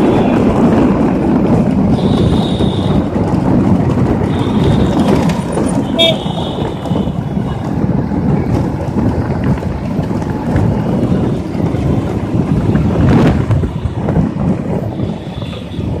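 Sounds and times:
road traffic: 0.0s - 16.0s
wind buffeting microphone: 0.0s - 16.0s.

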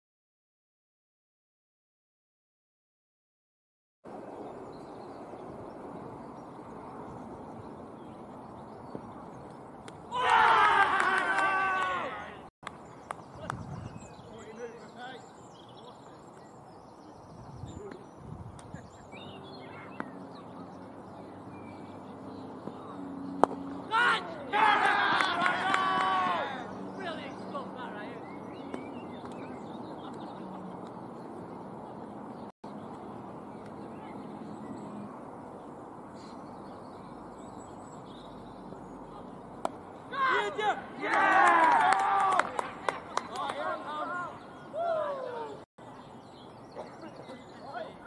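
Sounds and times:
birds chirping: 4.1s - 48.0s
faint distant voices: 13.2s - 24.5s.

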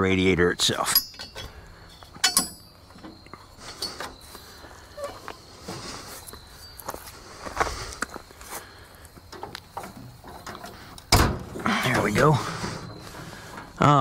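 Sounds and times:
metal pin clinking: 0.9s - 4.2s.

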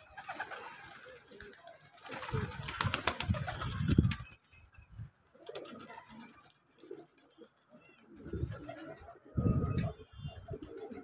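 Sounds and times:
pigeons cooing: 5.3s - 11.0s.

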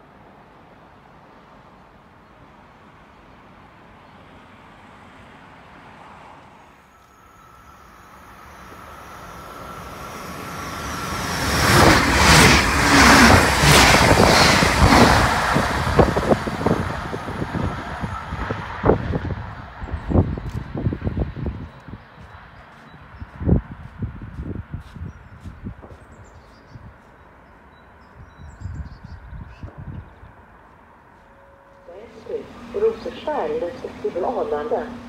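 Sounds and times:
electric train passing: 0.0s - 22.6s, 30.2s - 35.0s.

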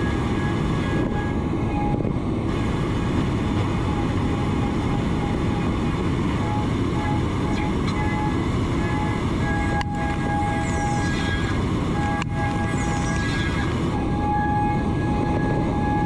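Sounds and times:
machining center cutting metal: 0.0s - 16.0s.

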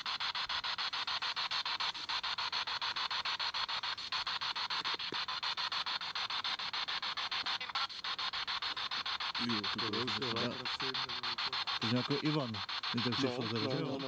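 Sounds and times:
pulsing radio static: 0.0s - 14.0s
person asking questions: 9.4s - 14.0s.

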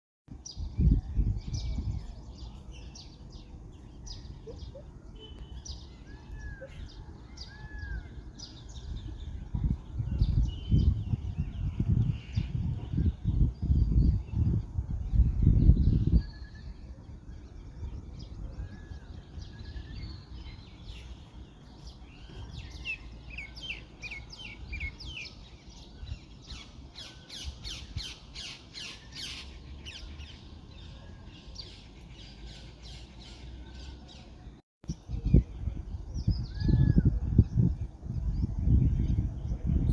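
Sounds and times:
birds chirping: 0.3s - 39.9s
microphone rumble: 8.7s - 20.9s, 34.9s - 39.9s.

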